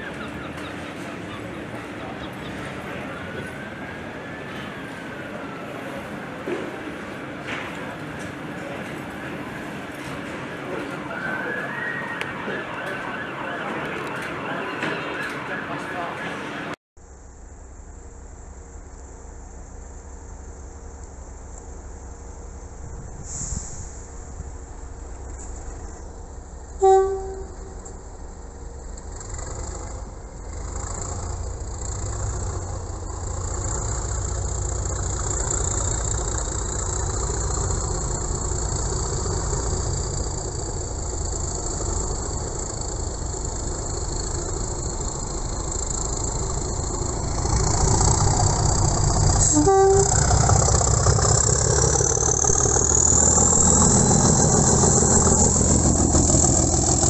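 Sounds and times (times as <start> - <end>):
diesel locomotive engine: 0.0 - 57.0
train horn blast: 26.8 - 27.9, 49.3 - 50.9
high whine: 36.4 - 57.0.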